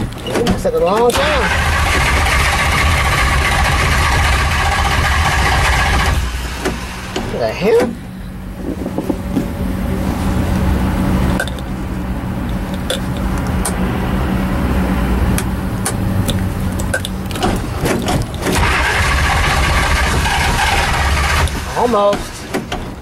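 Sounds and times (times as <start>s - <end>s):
engine cranking without starting: 0.0s - 8.0s, 15.3s - 23.0s.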